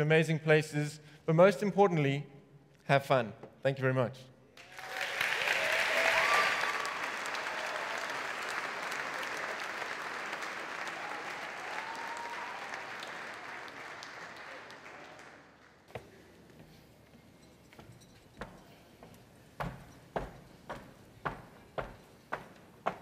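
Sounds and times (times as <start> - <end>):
audience applauding: 4.6 - 15.9.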